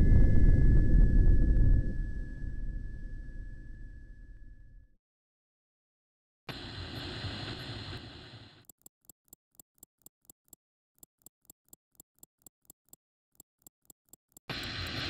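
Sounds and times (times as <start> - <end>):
rapid regular ticking: 8.6 - 15.0.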